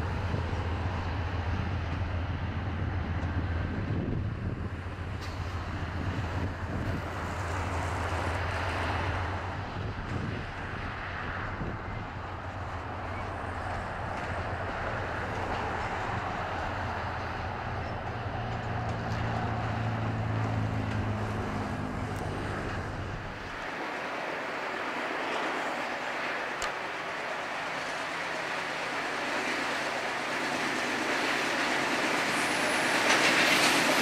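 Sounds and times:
locomotive diesel engine drone: 0.0 - 34.0
wheels rushing on rail: 0.0 - 34.0.

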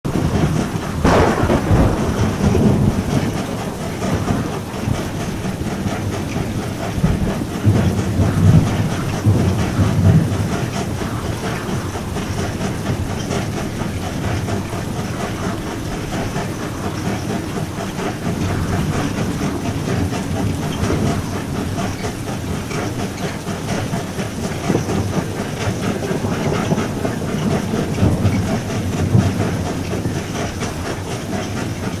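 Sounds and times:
steam train wheels clattering: 0.1 - 32.0.

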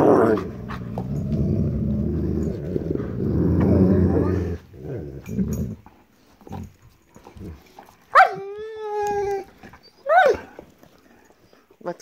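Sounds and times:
dog yip: 8.1 - 8.4
dog whine-howl: 8.2 - 10.6.

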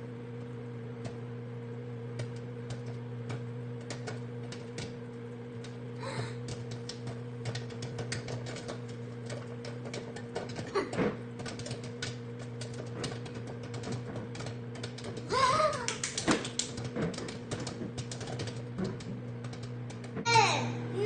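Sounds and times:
microwave oven humming: 0.0 - 21.0
popcorn popping: 0.3 - 20.9
short loud voice: 20.3 - 20.8.

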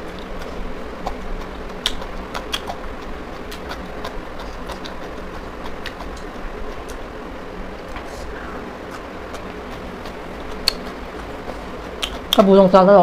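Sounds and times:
chewing and crunching cabbage: 0.0 - 7.1, 8.9 - 12.5
steady background hum: 0.0 - 13.0
mouth clicks: 1.1 - 2.8, 10.6 - 11.0, 12.0 - 12.4.

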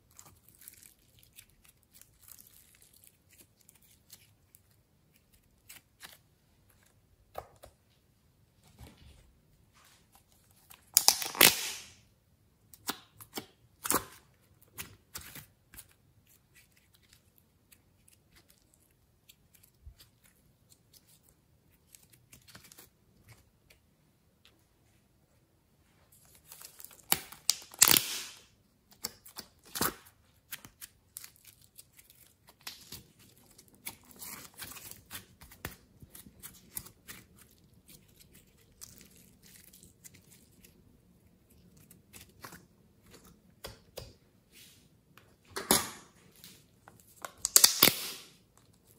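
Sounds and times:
slime tearing: 0.0 - 6.3, 10.8 - 12.0, 26.4 - 43.3, 47.2 - 48.9
sticky slime clicks and crackles: 47.3 - 48.1.

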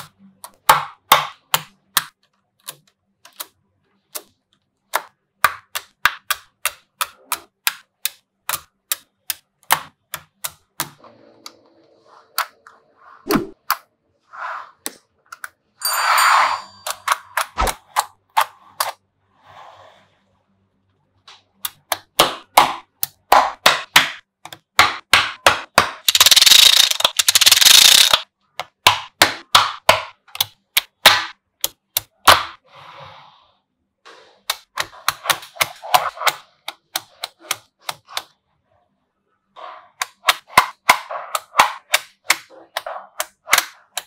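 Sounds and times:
magnetic balls clicking together: 26.0 - 28.3.

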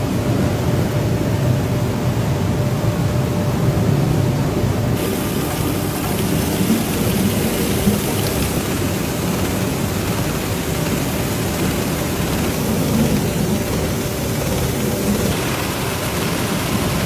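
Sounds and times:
bright hiss: 5.0 - 17.0
processing machinery din: 5.0 - 17.0
running water: 5.0 - 17.0.

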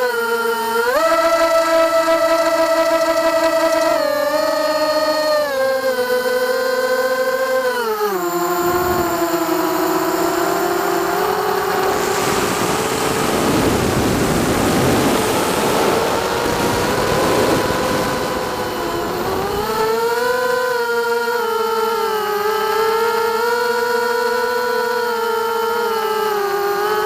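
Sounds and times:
drone motors whining: 0.0 - 27.0
rush of air noise: 10.2 - 20.0.

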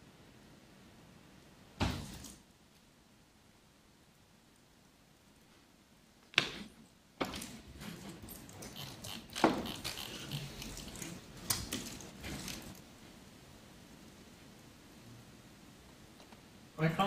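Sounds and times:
rustling: 5.4 - 13.2.

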